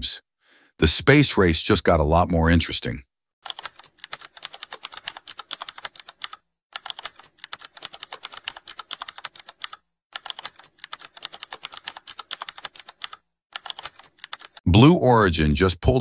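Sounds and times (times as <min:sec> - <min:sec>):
keyboard keys clicking: 0:03.4 - 0:14.6.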